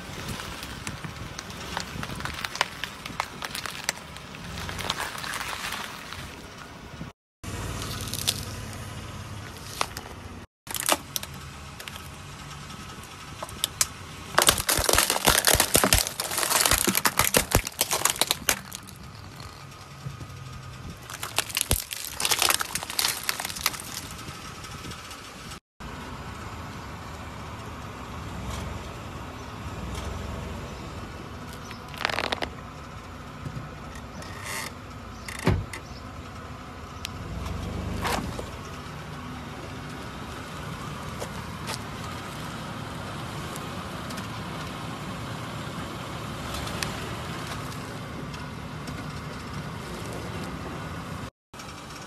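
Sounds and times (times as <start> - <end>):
car engine humming: 0.0 - 52.0
objects crushed under tyres: 0.1 - 6.4, 13.6 - 19.7, 21.0 - 24.4, 31.6 - 32.6
sharp cracks: 13.5 - 19.6, 21.0 - 24.4.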